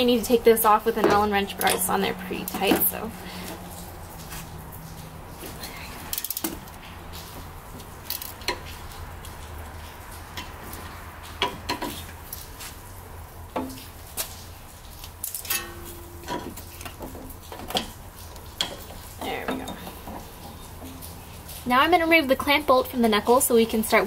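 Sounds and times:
metal clinks and taps: 15.2 - 21.2.

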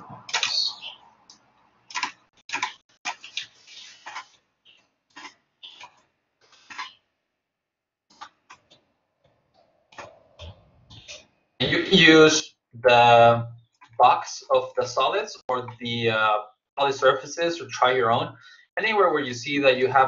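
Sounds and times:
computer mouse clicking: 1.3 - 4.4, 5.1 - 7.0, 8.1 - 8.8.

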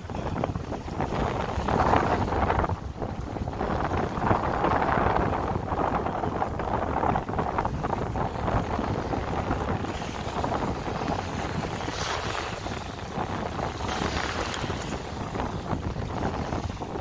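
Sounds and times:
wind buffeting microphone: 0.0 - 17.0
waves splashing on rocks: 7.7 - 17.0.

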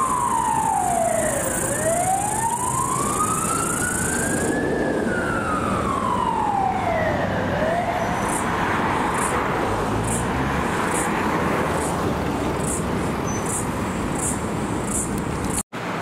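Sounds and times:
emergency siren wailing: 0.0 - 9.8
road traffic: 0.0 - 16.0.

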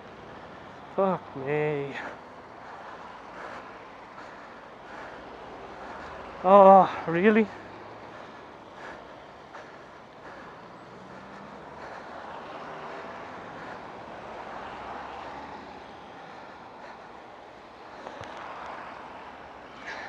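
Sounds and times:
tyres hissing on wet road: 10.6 - 16.7.

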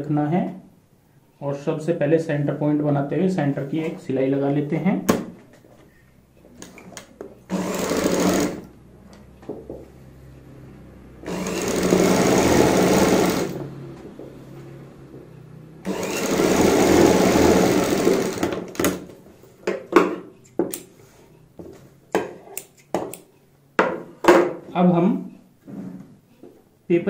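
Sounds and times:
sewing machine stitching: 7.5 - 8.7, 11.2 - 13.7, 15.8 - 19.1.

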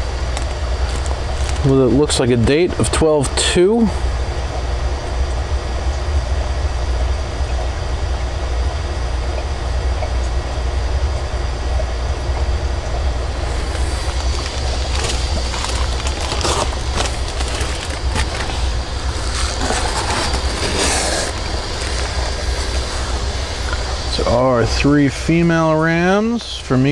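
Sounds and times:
plastic bags crinkling: 0.3 - 2.2, 13.4 - 24.0
steady low rumble: 12.1 - 26.8.

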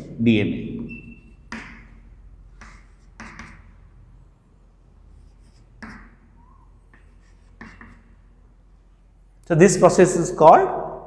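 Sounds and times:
pen scratching while writing: 2.6 - 3.7, 5.1 - 6.2, 6.8 - 8.2.

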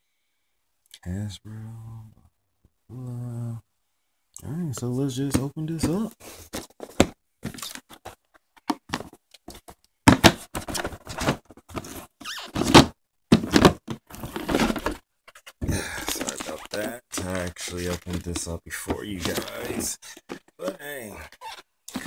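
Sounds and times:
cardboard box being handled: 5.8 - 20.5.

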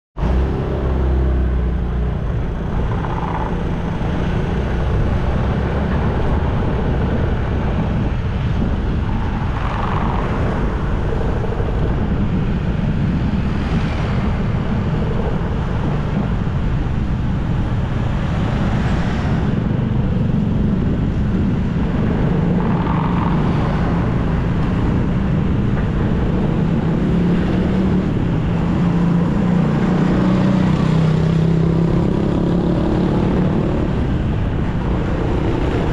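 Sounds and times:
road traffic rumble: 0.2 - 35.9
vehicles passing: 0.2 - 35.9
wind: 0.2 - 35.9.

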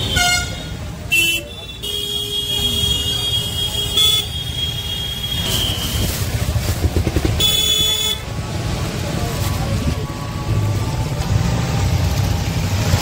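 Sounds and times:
vehicle horn blowing: 0.0 - 6.1, 7.4 - 8.2
street traffic: 0.0 - 13.0
rickshaw rumble: 2.4 - 13.0.

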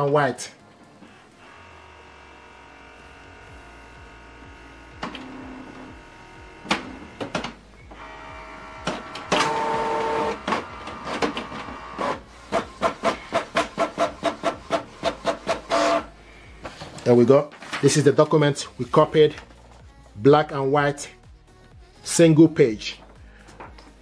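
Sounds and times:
printer whirring: 0.8 - 17.8
scanner motor hum: 1.0 - 12.5
printer clicks: 8.8 - 16.0
rapid printer clacks: 8.8 - 16.0.

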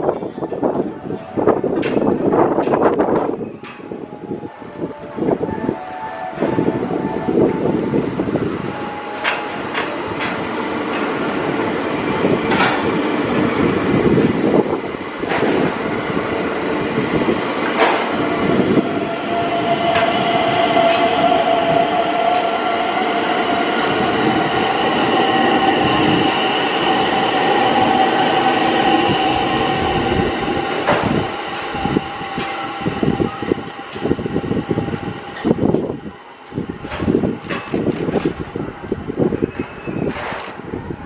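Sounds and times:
train cars clattering: 0.0 - 34.2
electric train running rumble: 0.0 - 41.0.

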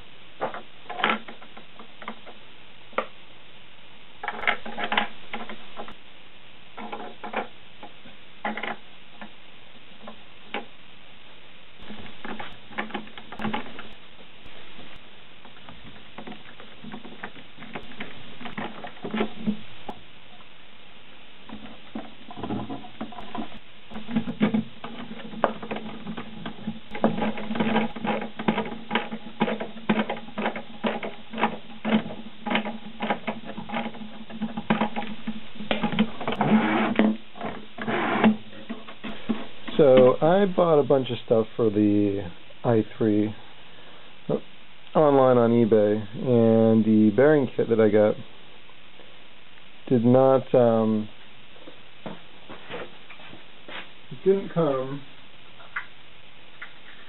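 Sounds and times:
plastic parts clicking and tapping: 0.4 - 3.2, 4.2 - 6.0, 6.8 - 9.4, 11.8 - 14.0, 15.4 - 20.4, 21.5 - 40.2
low hum: 5.1 - 32.5.

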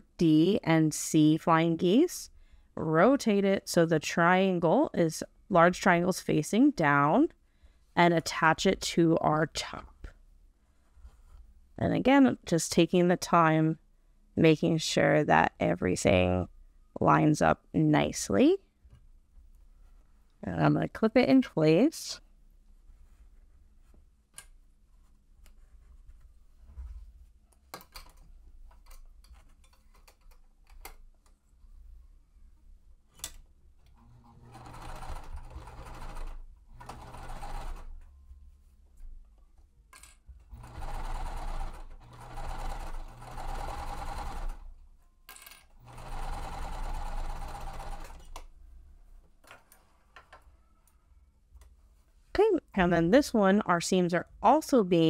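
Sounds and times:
sewing machine stitching: 33.9 - 38.0, 40.5 - 44.7, 45.7 - 48.4.

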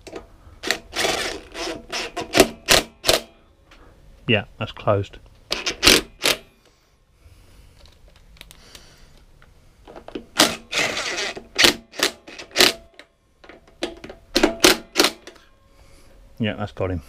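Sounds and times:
faint hum: 0.0 - 17.0
power driver bursts: 10.3 - 12.8.

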